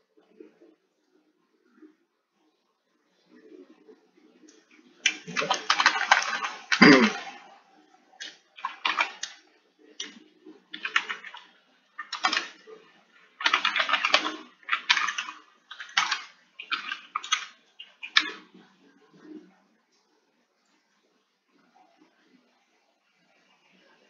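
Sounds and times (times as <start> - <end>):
typing on keyboard: 5.1 - 7.3, 8.6 - 9.4, 10.0 - 12.6, 13.4 - 18.4.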